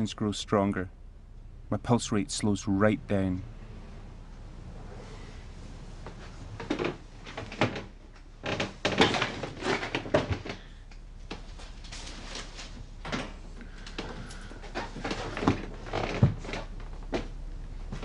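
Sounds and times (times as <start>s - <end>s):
knocks and clatters: 6.1s - 10.7s.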